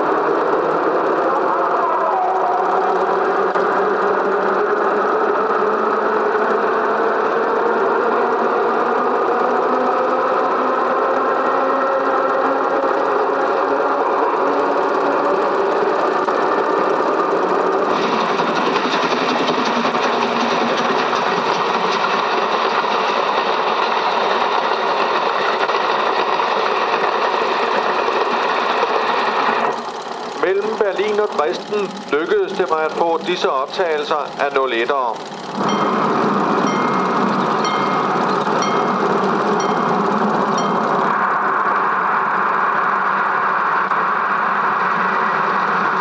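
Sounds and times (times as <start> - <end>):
film projector whirring: 0.0 - 46.0.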